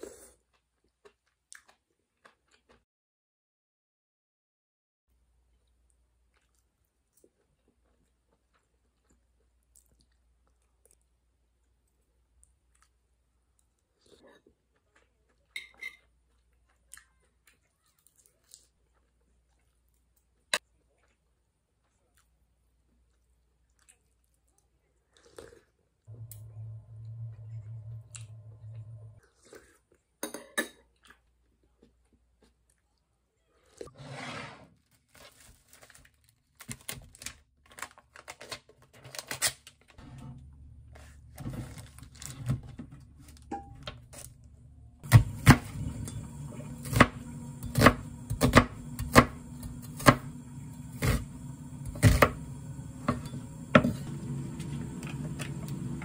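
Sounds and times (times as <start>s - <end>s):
steady low hum: 26.1s - 29.2s
plastic crinkling: 34.8s - 40.0s, 41.6s - 42.4s
knife chopping on wooden board: 46.8s - 50.3s, 51.9s - 52.4s.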